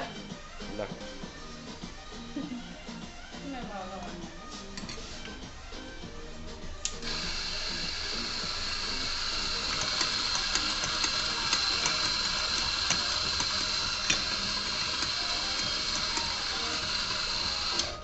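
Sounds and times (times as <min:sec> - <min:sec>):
coffee grinder whirring: 0:06.8 - 0:18.0.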